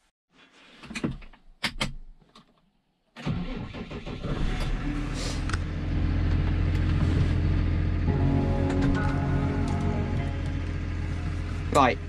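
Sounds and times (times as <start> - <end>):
diesel engine starting and idling: 3.2 - 12.0.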